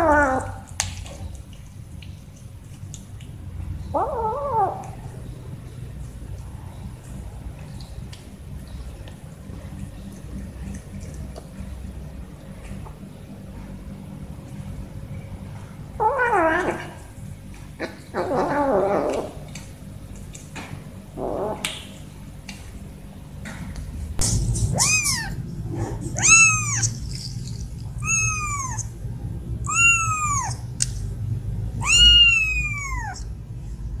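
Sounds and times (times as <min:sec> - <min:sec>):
kitten meowing: 0:24.7 - 0:25.4, 0:26.2 - 0:27.2, 0:28.0 - 0:28.9, 0:29.6 - 0:30.7, 0:31.8 - 0:33.3.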